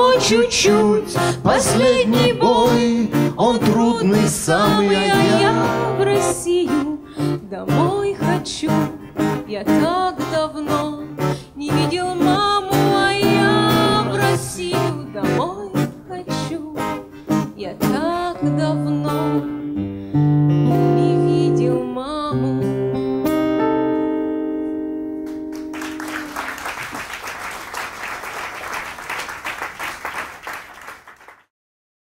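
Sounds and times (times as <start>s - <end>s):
man and woman singing: 0.0s - 6.8s
acoustic guitar: 0.0s - 27.0s
audience applause: 25.3s - 31.5s.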